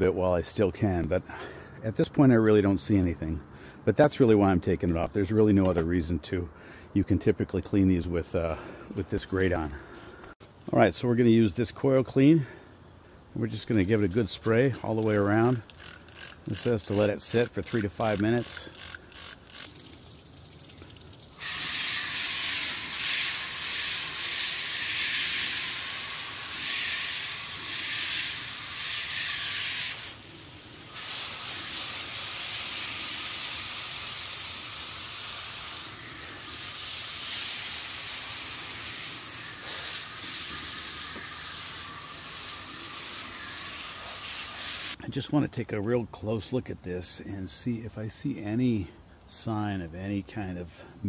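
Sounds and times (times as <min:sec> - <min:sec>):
water hissing from hose nozzle: 0:13.5 - 0:45.0.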